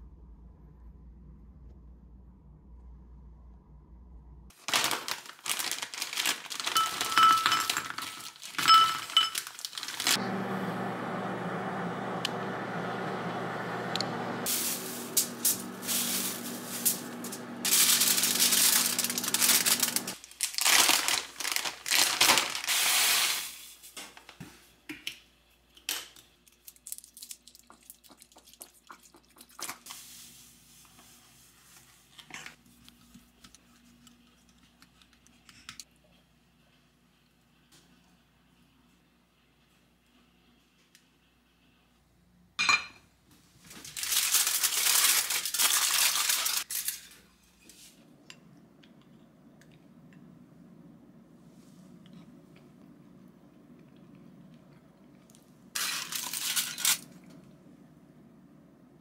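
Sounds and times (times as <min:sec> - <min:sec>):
foil bag crinkling: 0:04.5 - 0:10.2, 0:14.5 - 0:23.5, 0:26.5 - 0:27.7, 0:43.6 - 0:47.2, 0:55.8 - 0:57.3
plastic bag crinkling: 0:04.5 - 0:10.2, 0:14.5 - 0:23.3, 0:43.7 - 0:47.1, 0:55.8 - 0:57.2
frozen berries clinking into glass bowl: 0:04.7 - 0:10.2
spoon clinking in glass bowl: 0:06.8 - 0:07.9
appliance hum: 0:08.7 - 0:25.2, 0:42.8 - 0:59.0.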